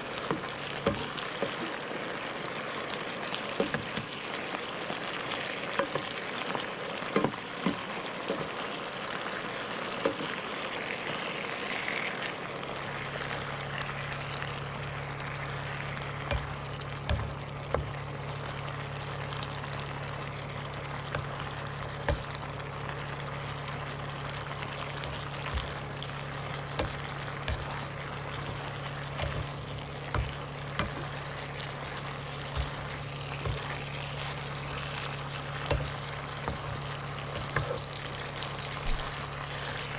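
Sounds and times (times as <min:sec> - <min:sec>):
low steady hum: 0:00.0 - 0:39.9
sauce simmering and bubbling: 0:00.0 - 0:39.9
spatula scraping a pan: 0:26.7 - 0:38.0.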